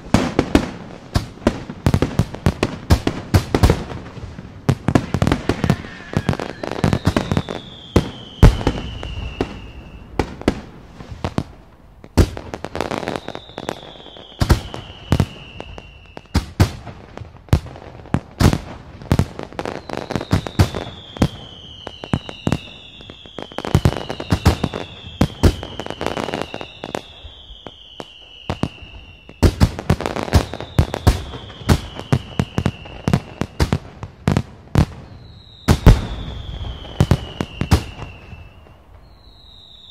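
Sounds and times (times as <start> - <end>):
firework whistles gliding down: 4.9 - 16.6, 19.5 - 33.8, 34.8 - 39.9.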